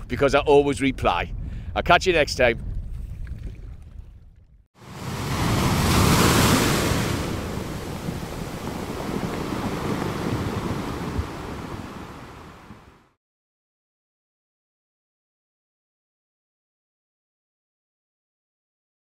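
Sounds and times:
sea waves washing: 4.8 - 13.2.

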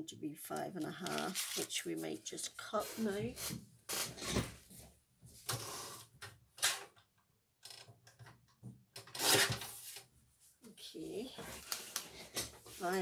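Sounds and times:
paper rustling: 1.0 - 1.8.

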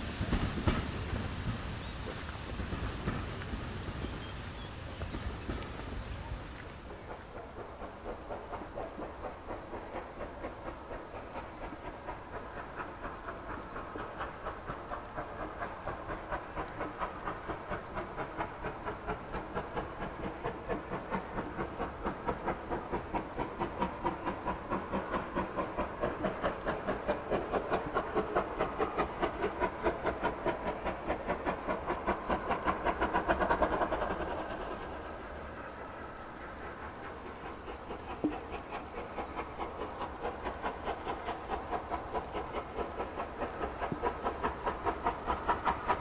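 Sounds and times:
steam locomotive chuffing: 0.0 - 46.0.

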